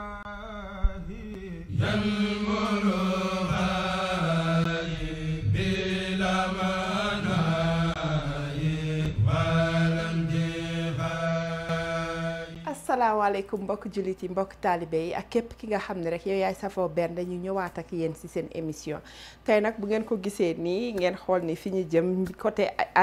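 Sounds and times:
chanted vocal line: 0:00.0 - 0:12.8.

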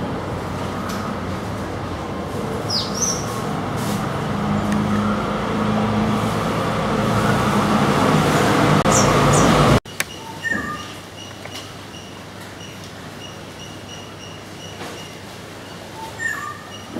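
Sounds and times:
heavy vehicle engine drone: 0:00.0 - 0:09.8
road traffic passing: 0:00.0 - 0:10.1
high bird chirps: 0:08.8 - 0:15.2.

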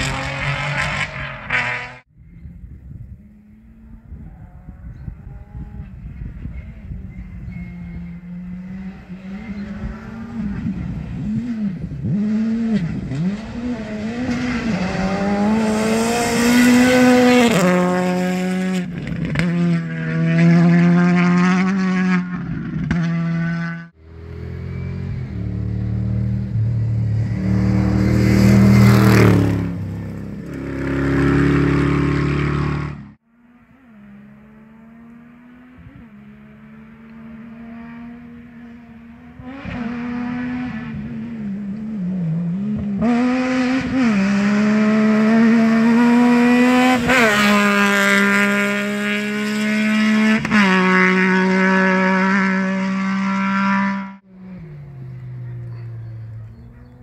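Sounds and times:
rally car engine revving: 0:00.0 - 0:02.1, 0:03.2 - 0:57.0
distant car engine: 0:00.0 - 0:57.0
deep engine passing close: 0:23.2 - 0:33.2, 0:33.9 - 0:57.0.

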